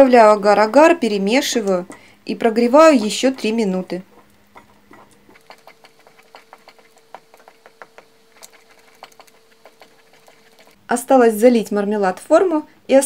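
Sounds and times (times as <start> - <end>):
puree simmering with small pops: 1.6 - 10.8.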